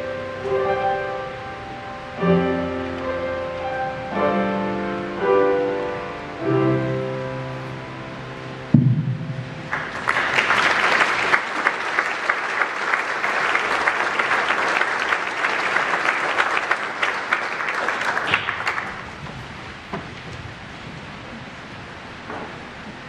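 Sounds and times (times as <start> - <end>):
final musical note: 8.7 - 10.4
audience applauding: 9.6 - 19.2.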